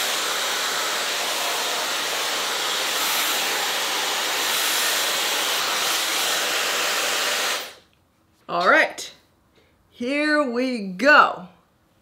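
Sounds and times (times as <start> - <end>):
hair dryer running: 0.0 - 7.8.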